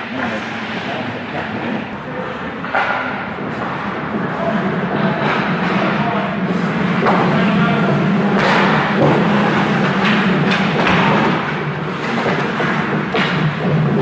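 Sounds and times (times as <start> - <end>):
steady low hum: 0.0 - 14.0
dull thuds of sticks and puck: 8.3 - 14.0.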